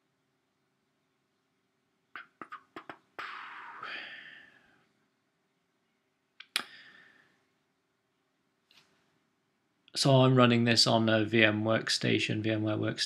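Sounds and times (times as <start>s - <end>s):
person exhaling breathily: 3.2s - 4.8s.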